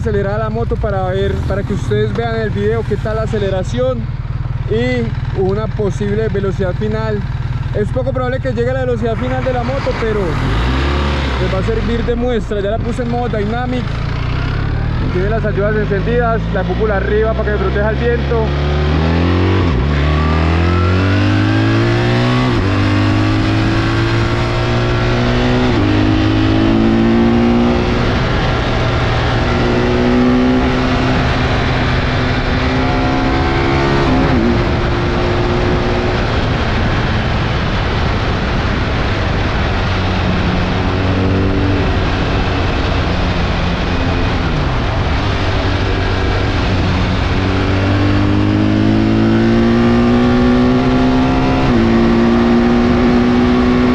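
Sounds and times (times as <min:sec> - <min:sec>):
motorcycle engine accelerating: 0:00.0 - 0:53.9
wind rush: 0:18.8 - 0:53.9.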